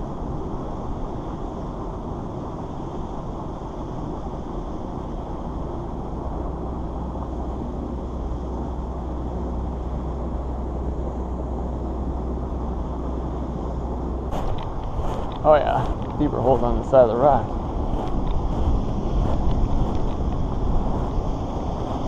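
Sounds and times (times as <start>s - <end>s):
wind buffeting microphone: 11.8s - 22.0s.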